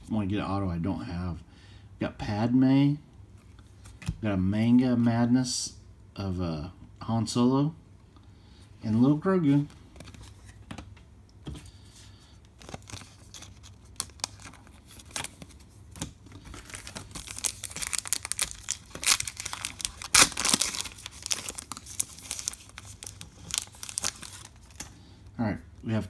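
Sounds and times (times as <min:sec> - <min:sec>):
foil pack crinkling and tearing: 0:12.6 - 0:25.0.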